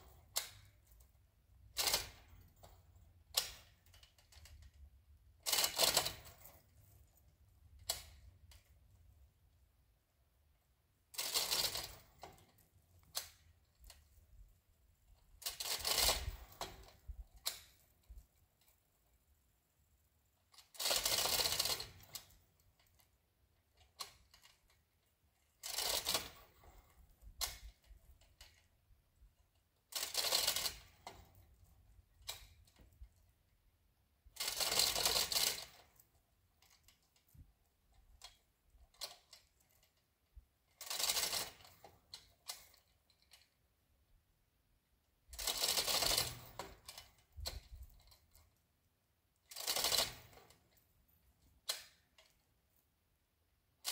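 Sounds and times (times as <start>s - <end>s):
ratchet clicking: 1.7s - 2.6s, 3.3s - 6.9s, 7.8s - 8.7s, 11.1s - 14.2s, 15.4s - 18.9s, 20.5s - 23.2s, 25.6s - 28.7s, 29.8s - 31.4s, 34.4s - 36.0s, 40.7s - 43.6s, 45.3s - 48.4s, 49.4s - 50.7s, 51.6s - 52.4s.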